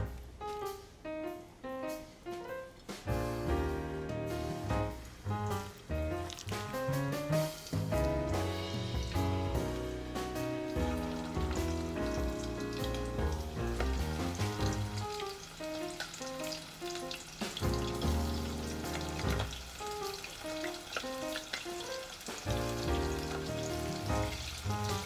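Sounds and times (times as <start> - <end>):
chicken sizzling in oil: 2.9 - 25.0
background music with bass line: 3.1 - 15.2, 17.6 - 19.6, 22.5 - 25.0.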